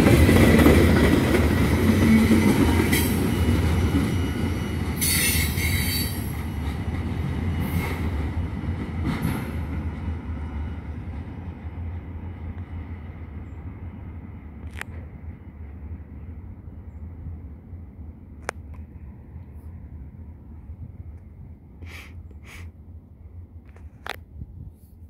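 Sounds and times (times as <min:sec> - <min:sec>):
freight train rumbling on rails: 0:00.0 - 0:25.0
train wheel squeals: 0:04.2 - 0:06.4.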